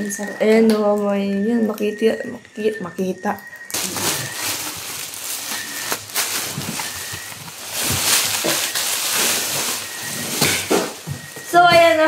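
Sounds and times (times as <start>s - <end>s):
plastic packaging crinkling: 3.6s - 12.0s.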